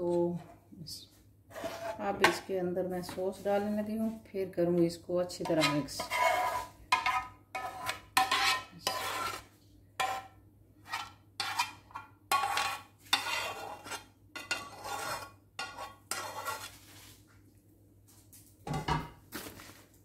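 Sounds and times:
metal spoon scraping a pan: 1.5s - 2.5s, 5.3s - 17.1s.

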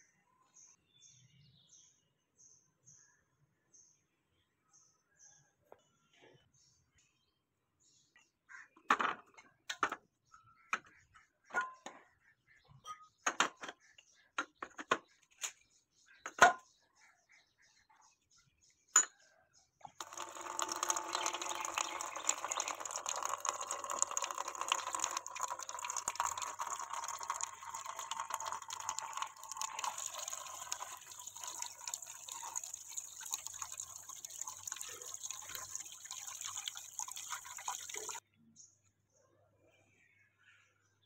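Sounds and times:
water pouring into metal basin: 19.9s - 38.2s.

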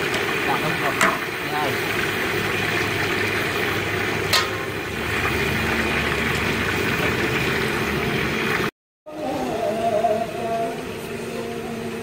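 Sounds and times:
food bubbling in a pot: 0.0s - 8.7s.

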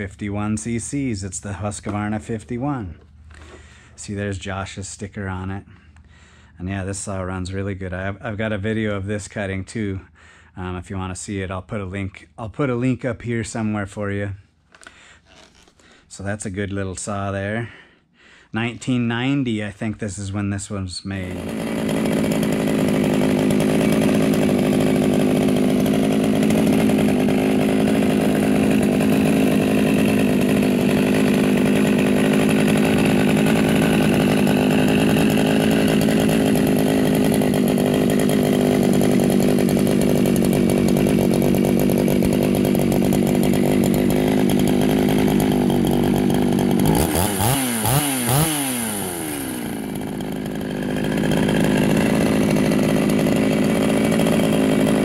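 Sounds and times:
chainsaw idling and revving: 0.0s - 9.5s, 21.1s - 55.0s.

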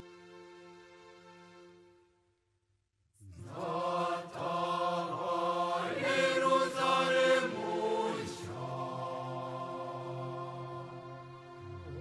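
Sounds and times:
choir-like chanting voices: 3.2s - 12.0s.

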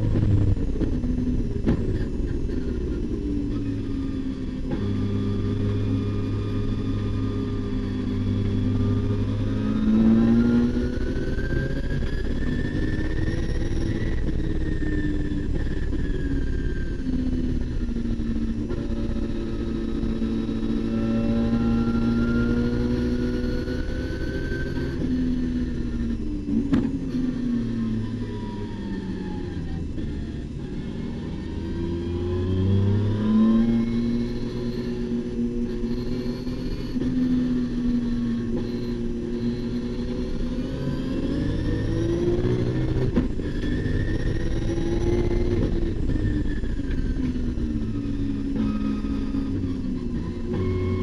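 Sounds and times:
race car engine revving: 0.0s - 51.0s.

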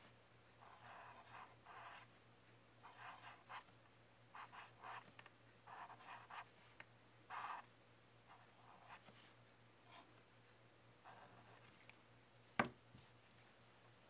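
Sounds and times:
marker scratching on paper: 0.6s - 2.0s, 2.8s - 3.7s, 4.4s - 5.1s, 5.7s - 6.5s, 7.3s - 7.7s.

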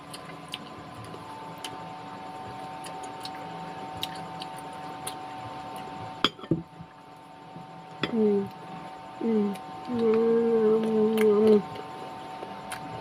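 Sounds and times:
steady low hum: 0.0s - 13.0s
mouth sounds of eating: 9.2s - 11.8s.

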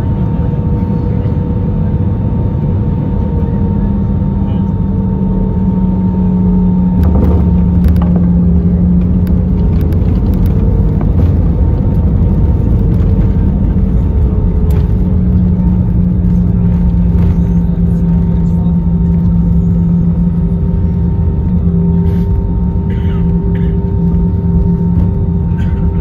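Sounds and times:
aircraft engine hum: 0.0s - 26.0s
wheels thudding on runway: 7.0s - 18.3s.

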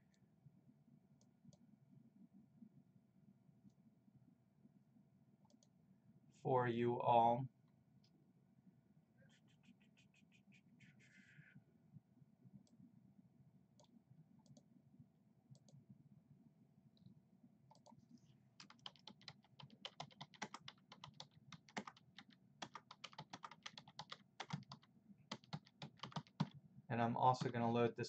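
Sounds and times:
faint rapid keyboard typing: 17.7s - 27.8s.

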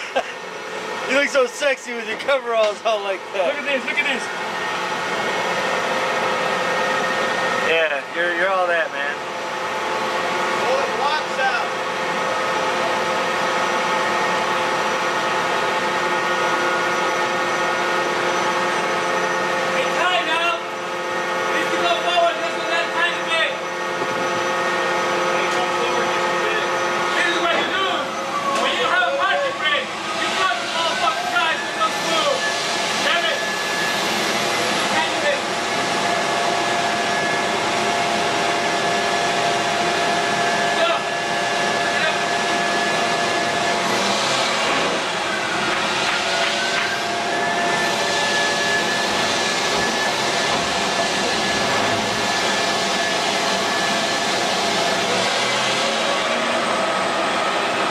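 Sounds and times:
machine droning with whining tones: 0.0s - 57.9s.

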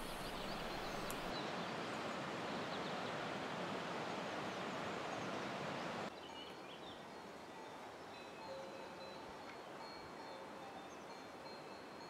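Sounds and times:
bird chirps: 0.0s - 1.4s.

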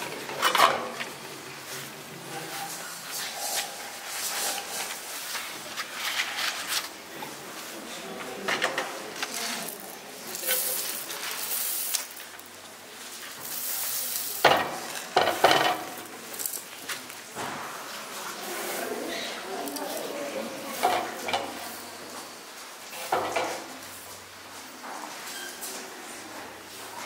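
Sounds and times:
hand stirring loose grain: 2.4s - 7.0s, 9.2s - 15.1s.

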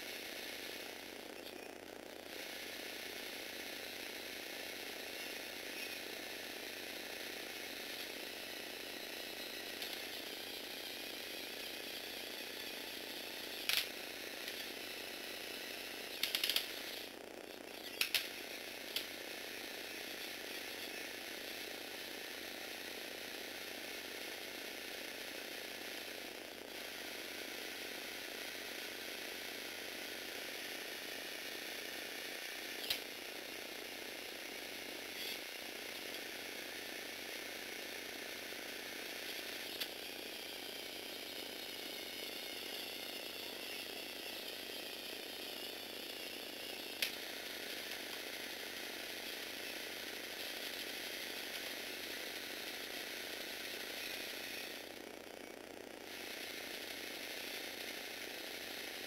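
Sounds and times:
motor whirring plastic gears: 0.0s - 59.0s
sharp clicks: 16.2s - 16.8s.

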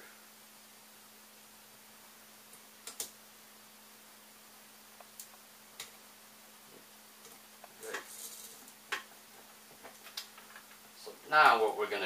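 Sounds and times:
faint steady hum: 0.0s - 12.0s
rustle of electrical wires: 7.7s - 8.8s.

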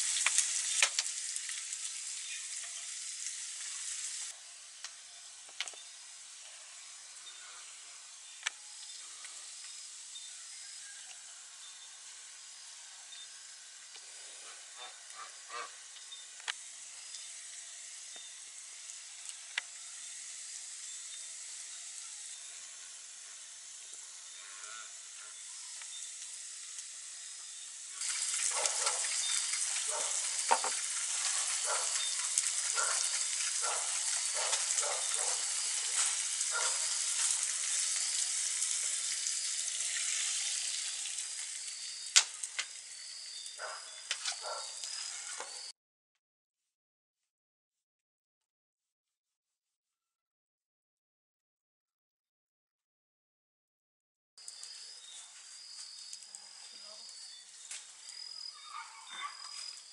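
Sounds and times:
food sizzling in a pan: 0.0s - 45.7s, 54.4s - 58.8s, 59.4s - 59.9s
spatula stirring pan: 28.0s - 39.2s.

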